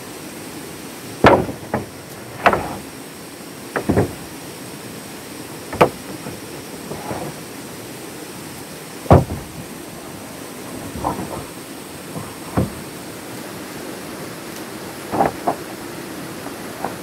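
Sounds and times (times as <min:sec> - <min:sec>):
rain hiss: 0:00.0 - 0:17.0
sharp knocks: 0:01.2 - 0:02.8, 0:03.7 - 0:04.3, 0:05.7 - 0:07.4, 0:09.1 - 0:09.7, 0:10.8 - 0:11.5, 0:12.2 - 0:12.9, 0:15.1 - 0:15.7.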